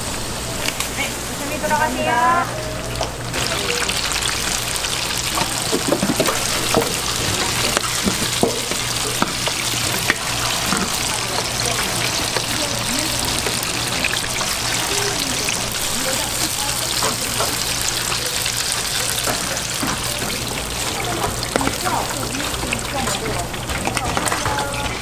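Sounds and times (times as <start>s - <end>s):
low hum: 0.0s - 18.0s
hot oil sizzling and crackling: 0.0s - 25.0s.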